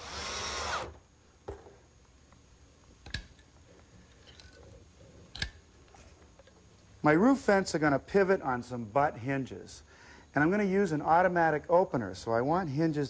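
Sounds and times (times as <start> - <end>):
sharp clicks of parts handled: 3.0 - 3.5, 5.3 - 6.6.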